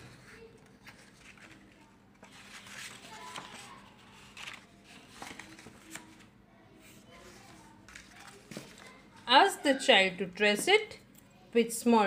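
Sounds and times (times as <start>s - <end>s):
paper rustling: 0.3s - 6.3s, 7.1s - 9.2s.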